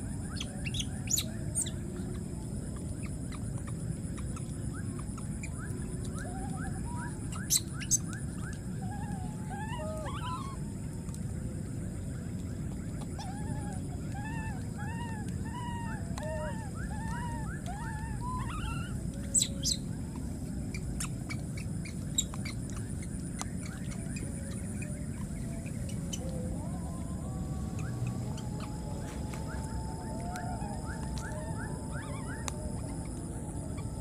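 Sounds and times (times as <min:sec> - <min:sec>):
low background noise: 0:00.0 - 0:34.0
baby monkey calling: 0:06.2 - 0:10.6, 0:13.2 - 0:19.8, 0:20.7 - 0:33.0.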